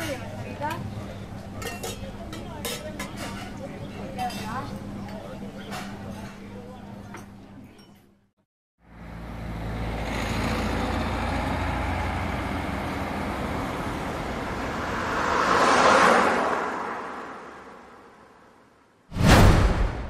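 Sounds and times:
louder vehicle passing: 0:08.8 - 0:19.0
cars running along a road: 0:08.8 - 0:19.1.

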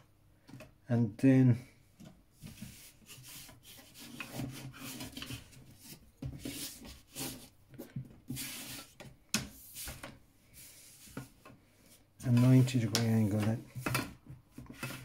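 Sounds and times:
plastic scraping over paper: 0:02.4 - 0:09.1, 0:12.2 - 0:15.0.

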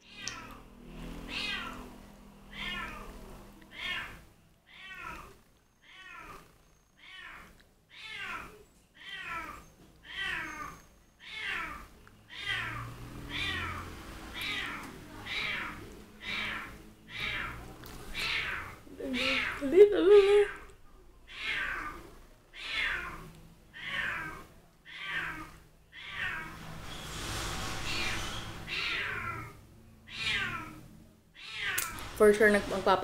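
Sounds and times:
cat meowing: 0:00.0 - 0:00.6, 0:01.2 - 0:19.7, 0:21.3 - 0:26.6, 0:27.9 - 0:32.0.

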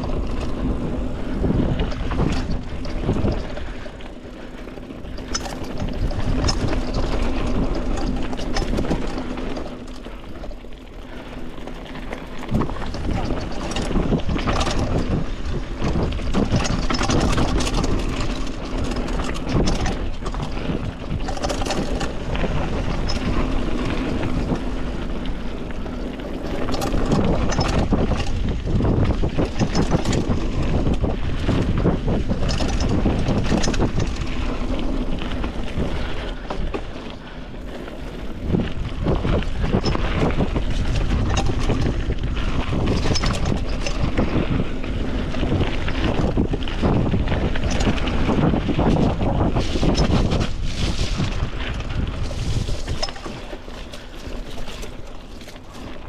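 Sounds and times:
bike rattling over bumps: 0:00.0 - 0:56.0
tyres rushing on dirt: 0:00.0 - 0:56.0
wind buffeting microphone: 0:00.0 - 0:56.0.

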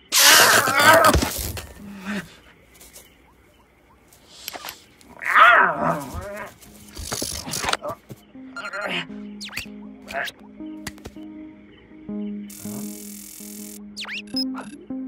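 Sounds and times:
cartoon cat yowling: 0:05.2 - 0:06.5.

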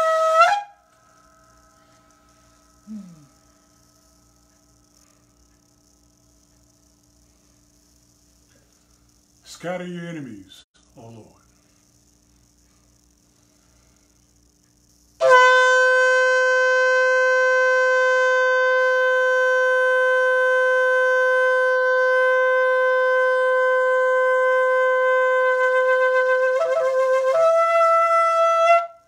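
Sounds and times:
shofar blast: 0:00.0 - 0:01.8, 0:15.2 - 0:29.0.

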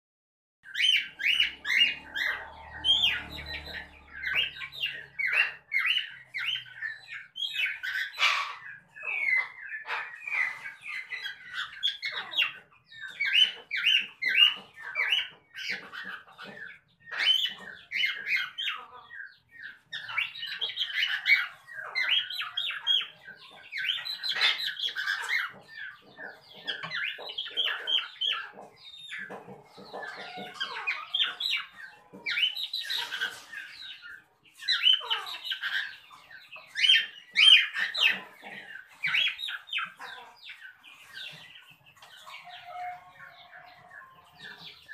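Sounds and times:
cockatiels chirping: 0:00.7 - 0:44.9.

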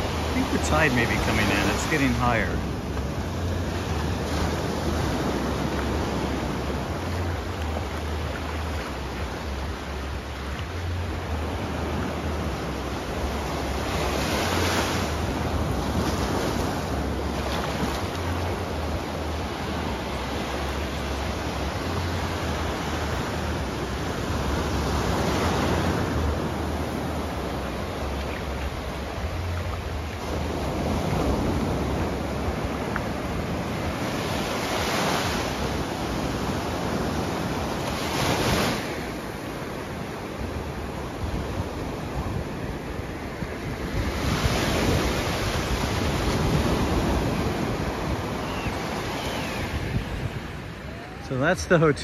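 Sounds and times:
surf breaking on beach: 0:00.0 - 0:08.2, 0:11.1 - 0:52.0
wind rumble on microphone: 0:39.8 - 0:51.3.

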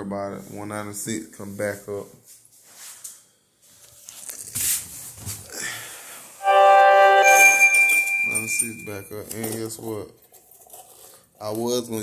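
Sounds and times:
sustained keyboard chord: 0:06.4 - 0:08.9.

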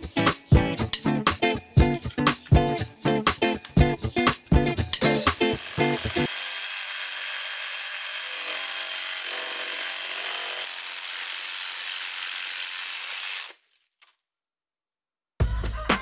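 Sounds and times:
reciprocating saw cutting stems: 0:05.0 - 0:14.1.

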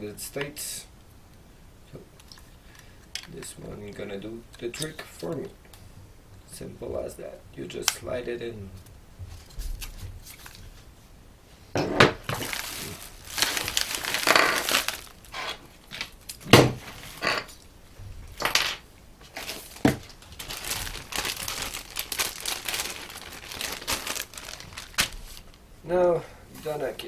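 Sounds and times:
plastic bags crinkling: 0:12.2 - 0:17.6, 0:19.2 - 0:25.6.

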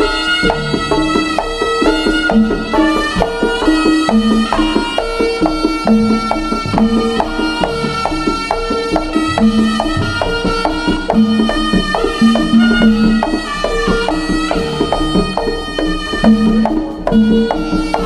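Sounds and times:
drum kit beat: 0:00.0 - 0:18.0
gongs: 0:00.0 - 0:18.0
hand drums: 0:00.0 - 0:18.0
reedy wind melody: 0:00.0 - 0:18.0.

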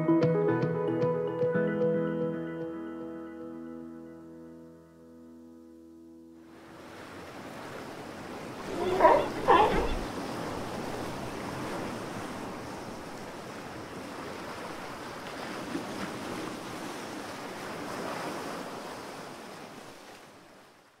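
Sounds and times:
rushing like ocean surf: 0:06.4 - 0:21.0.

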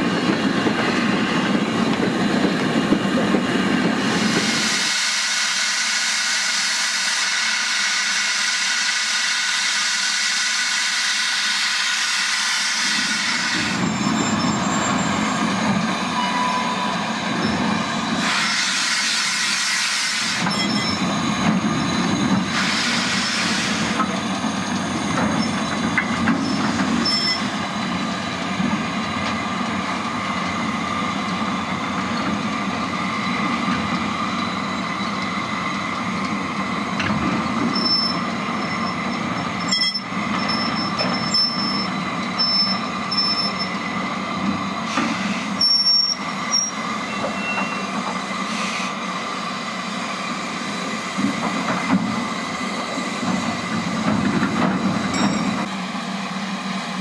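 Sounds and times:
train wheels rumbling: 0:00.0 - 0:57.0
wheels squealing: 0:12.8 - 0:27.6, 0:36.1 - 0:49.0.

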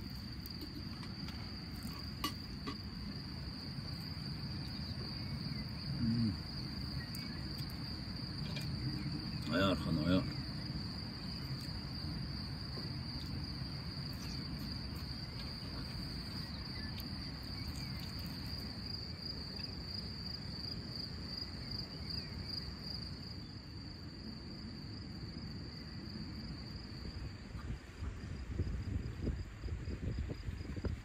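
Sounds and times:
wind gusts on microphone: 0:26.0 - 0:31.0.

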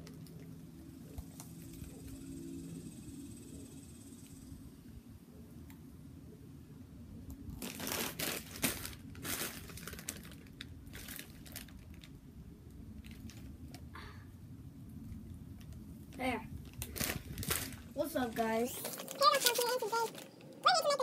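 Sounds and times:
plastic candy bag crinkling: 0:07.5 - 0:12.2, 0:13.0 - 0:13.8, 0:16.6 - 0:21.0.

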